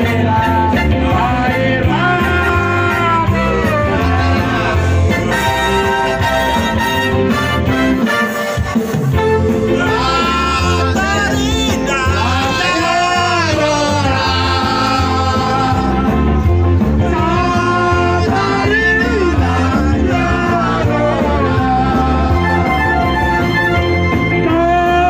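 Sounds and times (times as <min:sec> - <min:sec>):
person singing: 0:00.0 - 0:06.8, 0:09.7 - 0:16.3, 0:17.0 - 0:23.0.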